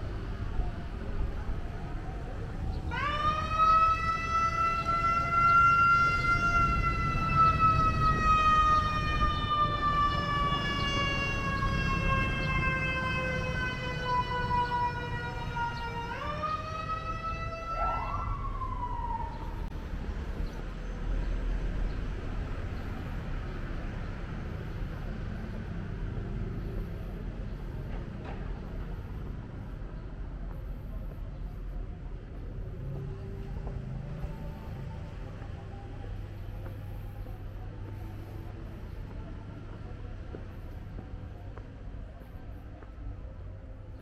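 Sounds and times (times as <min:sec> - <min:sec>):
low street noise rumble: 0:00.0 - 0:44.0
siren wailing: 0:01.9 - 0:19.8.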